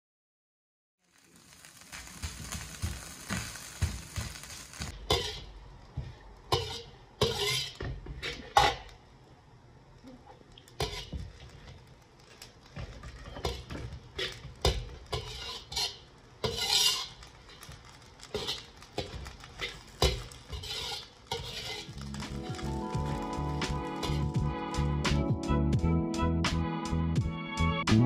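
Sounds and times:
metal spoon scraping a wok: 4.5 - 5.5, 6.5 - 8.9, 10.8 - 11.7, 12.9 - 24.4
music: 22.0 - 28.0.

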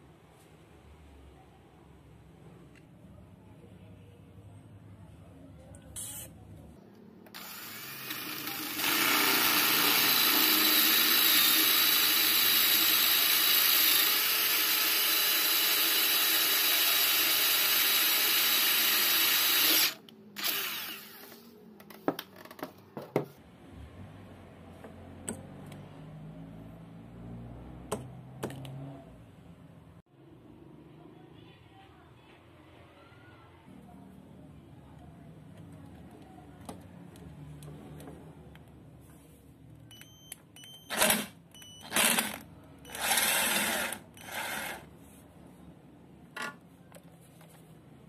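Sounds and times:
cordless drill boring into steel: 7.3 - 21.4, 40.9 - 44.9.

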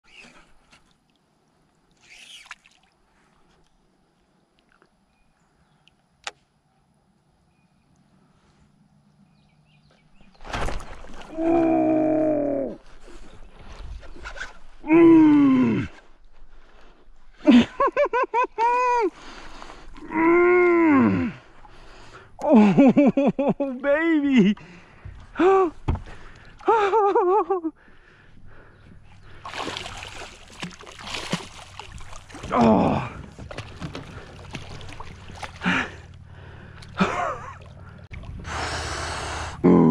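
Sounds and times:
faint bird chirps: 5.0 - 10.4
sharp click: 6.2 - 6.5
fish splashing in water: 29.3 - 32.6, 33.2 - 38.4.

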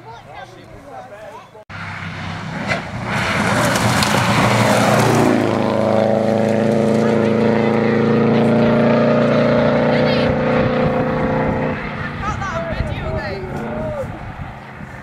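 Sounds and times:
tyres on gravel: 0.0 - 8.3
rally car engine passing: 1.7 - 15.0.

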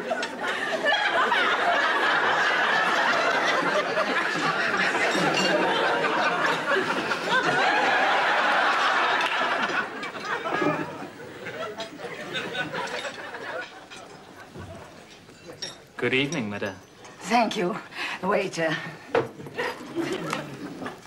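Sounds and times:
audience laughing: 0.0 - 15.0, 19.5 - 21.0.

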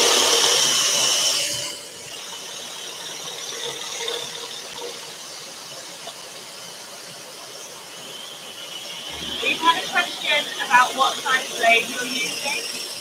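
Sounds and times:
scroll saw cutting wood: 0.0 - 13.0.

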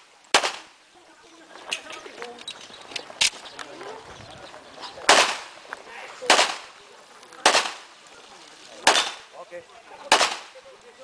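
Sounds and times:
pistol shots: 0.3 - 0.7, 5.1 - 5.5, 6.3 - 6.7, 7.4 - 7.8, 8.8 - 9.2, 10.1 - 10.5.

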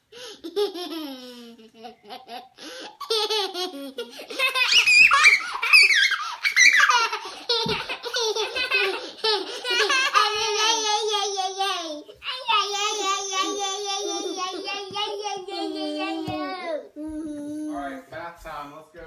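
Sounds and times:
children laughing and shrieking: 4.0 - 17.0.

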